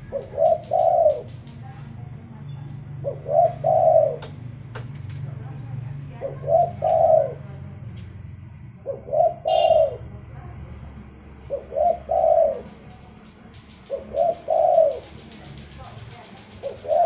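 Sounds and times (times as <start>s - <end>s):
dove cooing: 0.0s - 2.1s, 2.9s - 4.4s, 6.1s - 7.8s, 8.6s - 10.5s, 11.4s - 17.0s.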